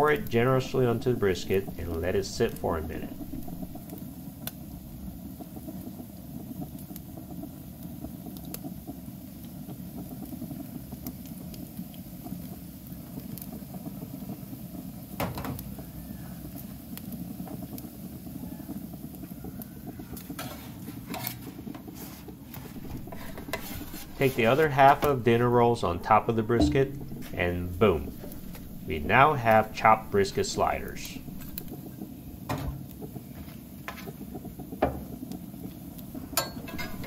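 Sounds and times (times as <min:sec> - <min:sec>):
griddle burners rumbling: 0:00.0 - 0:04.6, 0:22.5 - 0:37.0
food sizzling on hot plate: 0:00.0 - 0:37.0
sharp knock: 0:22.8 - 0:31.7.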